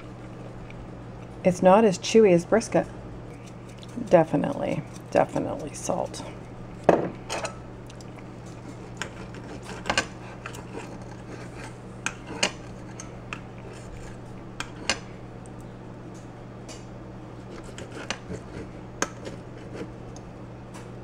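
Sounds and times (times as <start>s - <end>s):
knife and fork scraping on plate: 8.5s - 15.0s, 17.4s - 20.0s.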